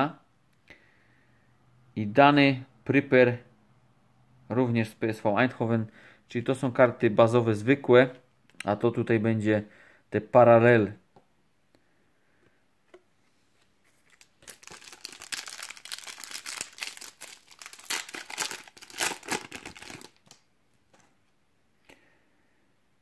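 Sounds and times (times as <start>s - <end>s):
foil wrapper crinkling and tearing: 14.0s - 20.4s.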